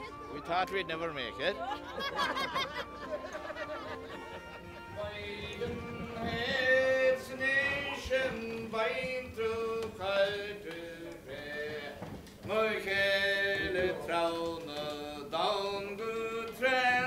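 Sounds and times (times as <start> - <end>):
man singing slow song: 4.8 - 17.0.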